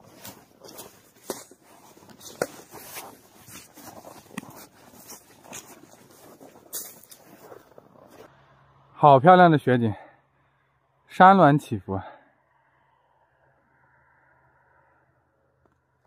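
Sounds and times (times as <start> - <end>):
footsteps crunching through snow: 0.0 - 8.3
snow crackling: 0.0 - 8.3.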